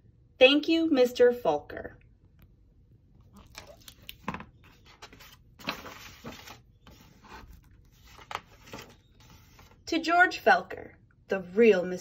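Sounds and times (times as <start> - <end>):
book pages rustling: 3.4 - 9.8.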